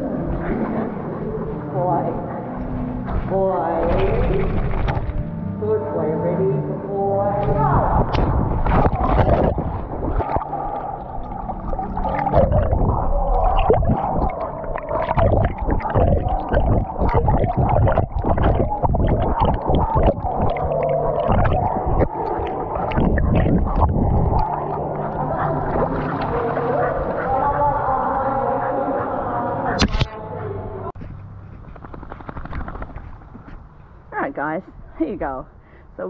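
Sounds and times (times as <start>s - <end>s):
muffled water sloshing and gurgling: 0.0s - 5.5s, 7.2s - 30.1s.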